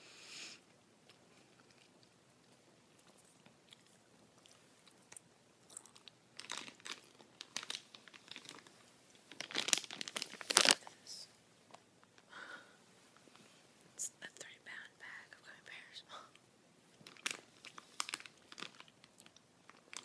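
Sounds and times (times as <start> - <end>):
plastic candy bag crinkling: 4.3 - 11.2, 16.9 - 20.0.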